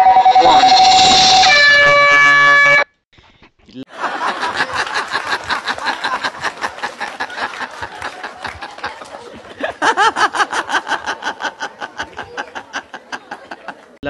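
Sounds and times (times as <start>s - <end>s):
man laughing hard: 3.9s - 8.6s, 9.5s - 13.7s.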